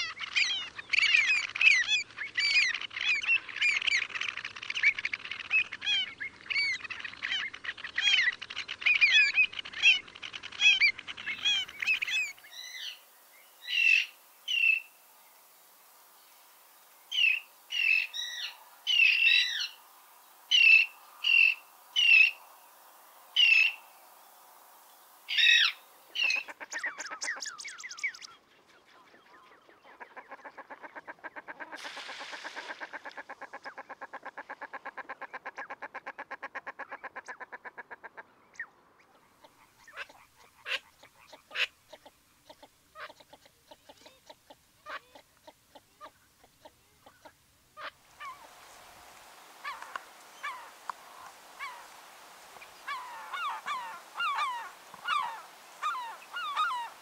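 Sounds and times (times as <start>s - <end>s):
tern calling: 43.9s - 57.0s.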